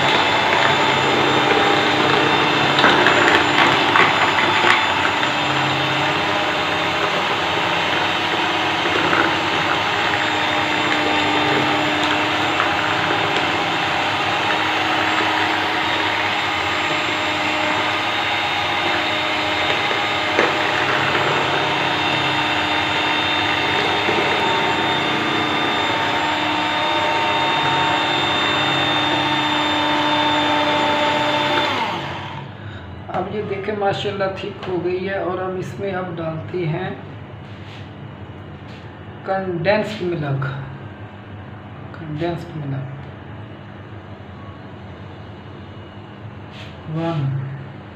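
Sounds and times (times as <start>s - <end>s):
electric hand mixer running: 0.0s - 32.6s.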